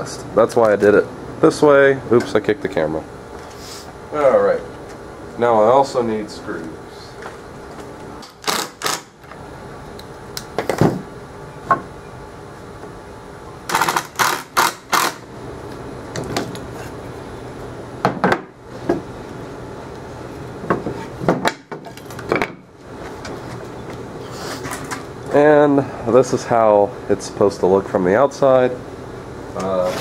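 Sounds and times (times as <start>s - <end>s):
boards and tools clattering: 20.6s - 23.7s.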